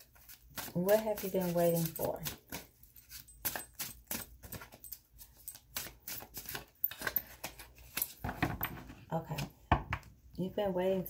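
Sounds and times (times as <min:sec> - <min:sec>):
cards being shuffled: 0:00.0 - 0:08.4.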